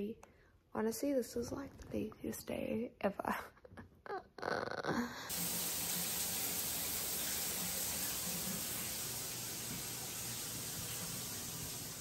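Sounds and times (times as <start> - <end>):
shower running: 5.2 - 12.0.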